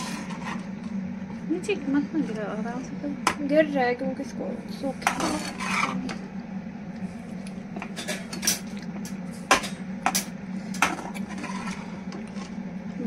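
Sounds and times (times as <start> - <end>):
metal spoon scraping a pan: 0.0 - 0.7, 5.0 - 6.2, 10.8 - 12.5.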